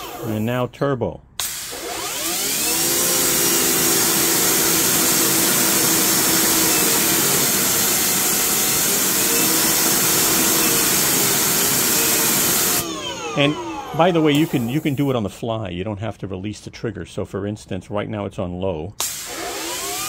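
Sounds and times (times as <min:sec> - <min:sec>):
pressure washer motor running: 0:01.4 - 0:15.1, 0:19.0 - 0:20.0
spray hissing on concrete: 0:14.3 - 0:15.1.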